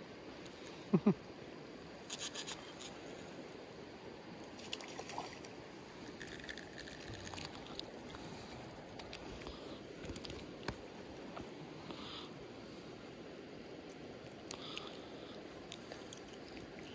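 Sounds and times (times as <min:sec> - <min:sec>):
creek water running: 0:04.3 - 0:16.9.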